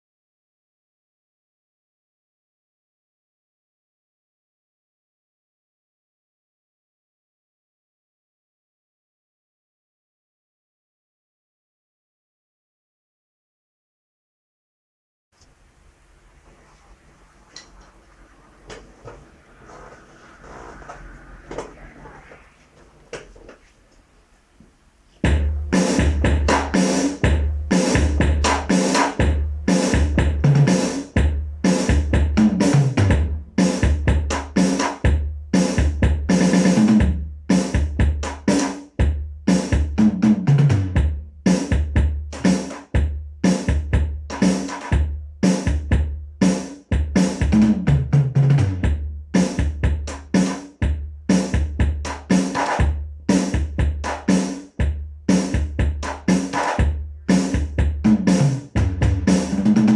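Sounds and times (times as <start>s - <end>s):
electronic drum kit groove: 25.2s - 59.9s.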